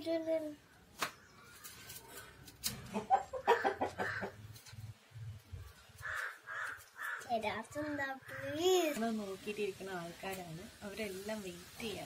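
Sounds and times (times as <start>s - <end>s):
hens clucking: 2.8s - 4.7s.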